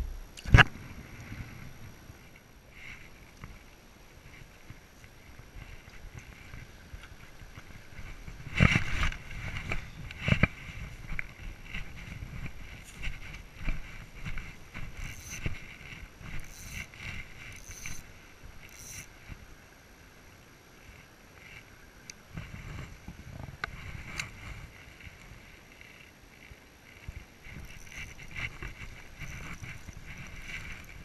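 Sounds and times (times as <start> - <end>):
rustling through vegetation: 0.0 - 31.0.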